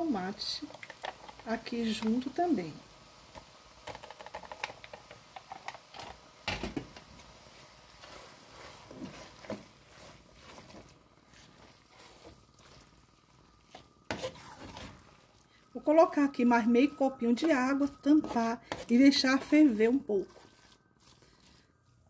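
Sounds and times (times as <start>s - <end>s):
soft squishing: 8.0s - 22.0s.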